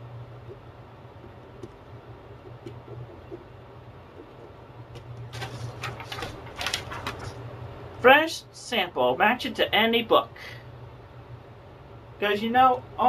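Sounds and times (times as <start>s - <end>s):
low hum: 0.0s - 6.0s
paper rustling: 5.2s - 7.5s.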